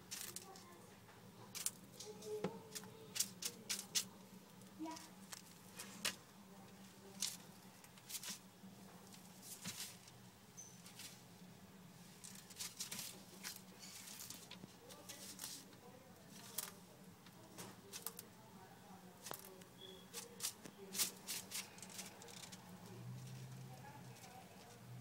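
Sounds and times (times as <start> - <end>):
claws tapping and scratching: 0.0 - 0.8, 1.4 - 11.3, 12.1 - 18.4, 19.2 - 25.0
paper crinkling: 12.2 - 15.7, 20.1 - 22.6.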